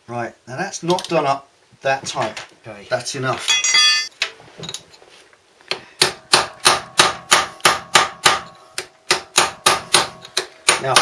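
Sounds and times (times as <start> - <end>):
faint clinks: 3.5 - 4.1.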